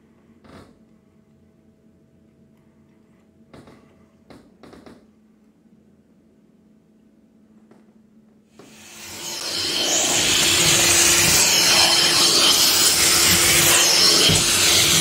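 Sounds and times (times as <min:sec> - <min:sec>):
vacuum hissing on carpet: 0:08.6 - 0:15.0.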